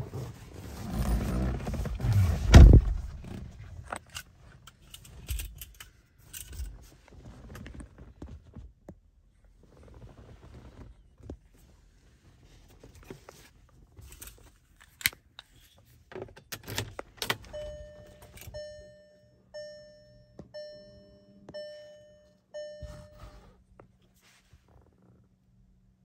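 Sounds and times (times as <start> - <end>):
dashboard warning chime: 17.3 - 23.6.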